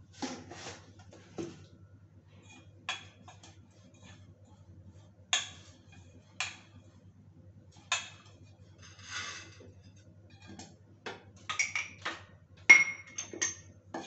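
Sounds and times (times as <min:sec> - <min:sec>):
low steady hum: 0:00.0 - 0:14.0
utensils clinking on steel bowl: 0:12.7 - 0:13.7.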